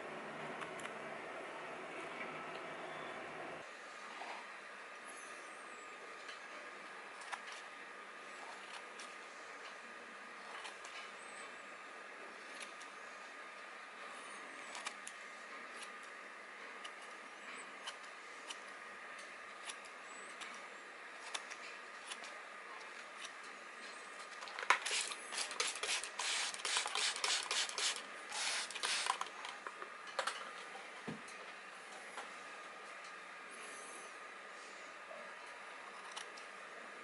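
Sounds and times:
shears snipping paper towel: 24.8 - 29.2.

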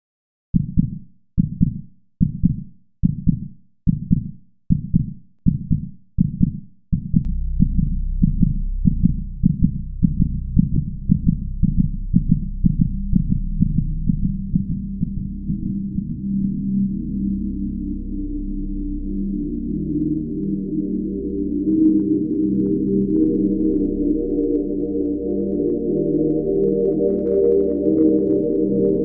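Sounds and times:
heartbeat thumps: 0.6 - 16.4
steady low drone: 7.3 - 29.0.

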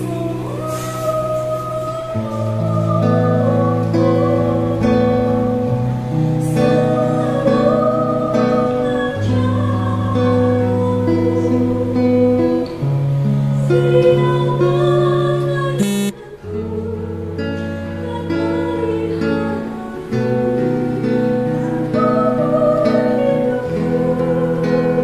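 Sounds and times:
acoustic guitar through amp: 0.0 - 25.0
woman singing held notes: 15.8 - 16.3
keyboard: 15.8 - 16.4.

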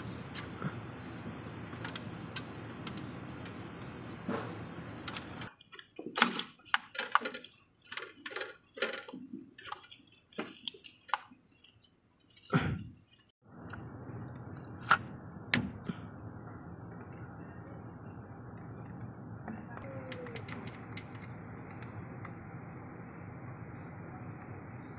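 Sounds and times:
metal tools clinking: 6.8 - 13.4.

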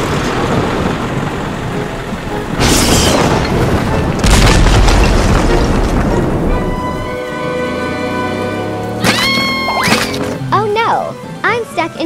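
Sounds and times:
sharp thunder crack: 0.0 - 6.7
steady rain: 0.0 - 9.0, 10.2 - 12.0
deep thunder boom: 2.5 - 6.7.

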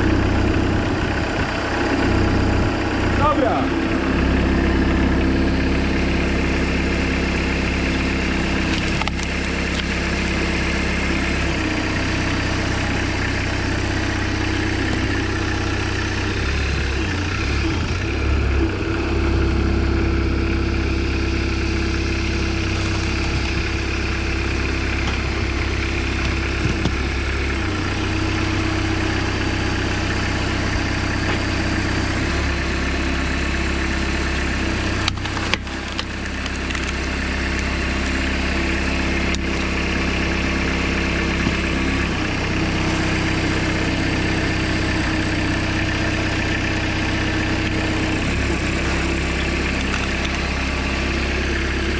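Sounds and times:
tractor engine running: 0.0 - 51.9.

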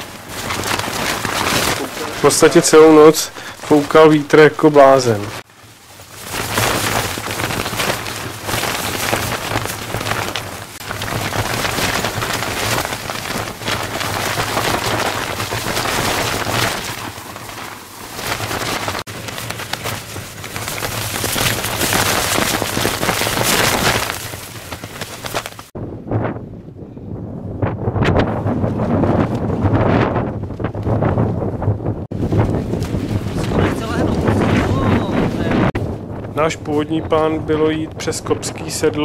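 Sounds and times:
tent fabric flapping: 0.0 - 26.6, 27.6 - 39.0
wind gusting: 0.0 - 39.0.

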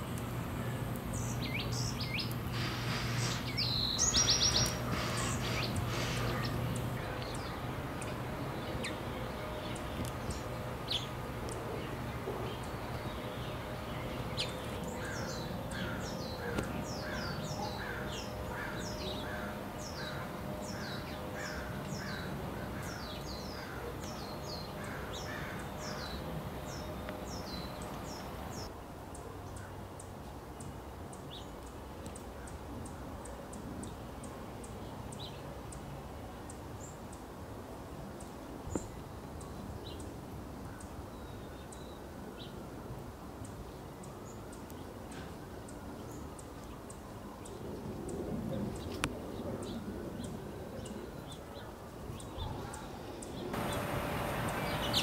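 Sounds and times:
birds calling harshly: 0.2 - 28.7, 52.3 - 55.0.

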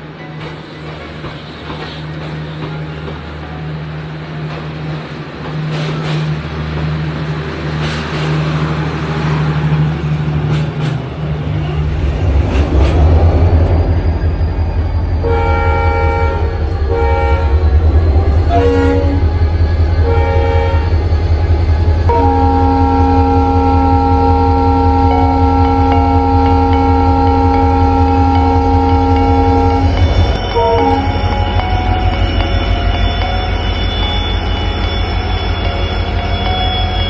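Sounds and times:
diesel locomotive engine drone: 0.0 - 37.0
multi-tone locomotive horn blasts: 15.2 - 37.0.

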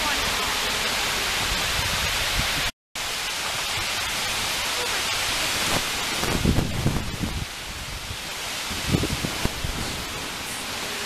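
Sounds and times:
water rushing over a dam: 0.0 - 11.0
wind buffeting microphone: 1.3 - 2.7, 5.4 - 10.4.

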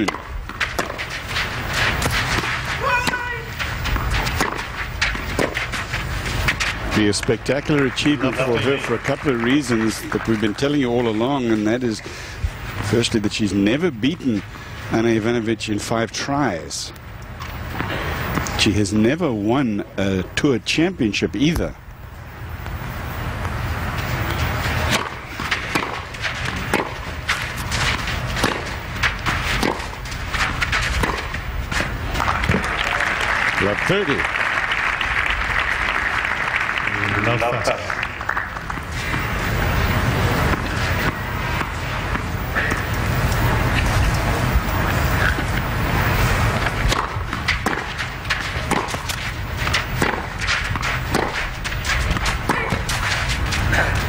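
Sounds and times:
racket striking tennis ball: 0.0 - 6.9, 24.2 - 32.7, 38.8 - 54.0
ball bouncing: 0.0 - 8.4, 24.2 - 32.7, 46.5 - 53.7
crowd noise: 1.5 - 13.4, 31.7 - 54.0
footfalls on court: 46.5 - 54.0.

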